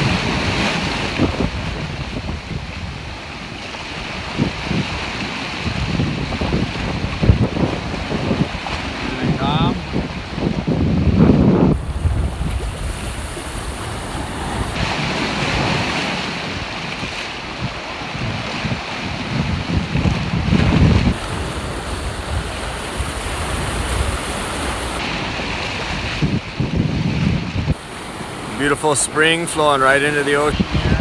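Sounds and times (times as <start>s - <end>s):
surf washing around rocks: 0.0s - 31.0s
wind buffeting microphone: 0.0s - 31.0s.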